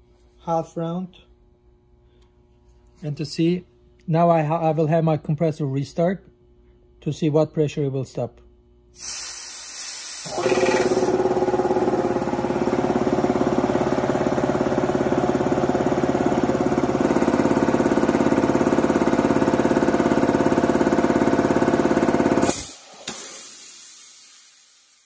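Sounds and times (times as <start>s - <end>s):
air hissing: 9.0s - 11.2s, 22.4s - 25.0s
sharp burst of air: 9.0s - 13.5s, 22.2s - 25.0s
air compressor pulsing: 9.0s - 25.0s.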